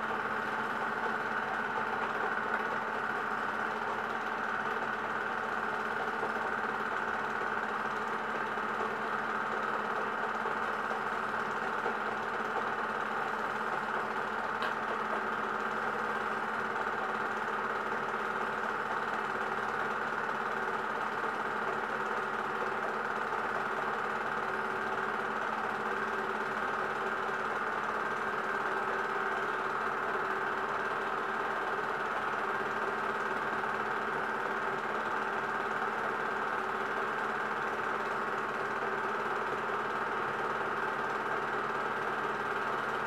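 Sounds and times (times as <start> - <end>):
film projector humming and rattling: 0.0 - 43.0.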